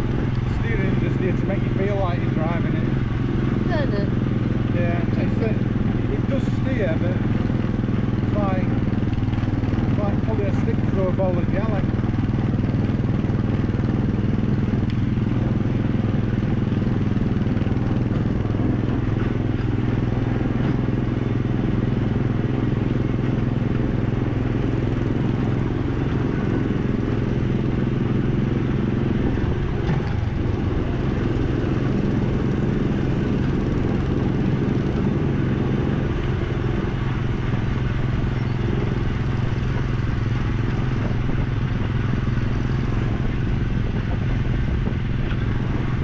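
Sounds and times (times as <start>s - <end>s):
small gasoline engine droning: 0.0s - 46.0s.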